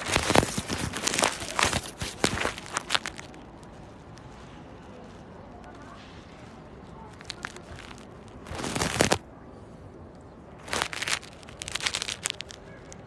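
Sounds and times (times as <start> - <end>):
crackly snaps: 0.0 - 4.3, 7.1 - 9.2, 10.6 - 13.0
cat chewing grass: 7.1 - 9.2.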